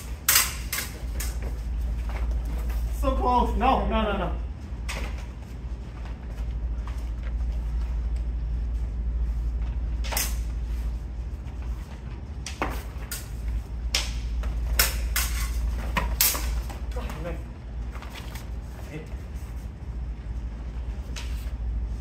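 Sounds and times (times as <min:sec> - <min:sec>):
steel swords clashing: 0:00.0 - 0:01.4, 0:14.8 - 0:16.6.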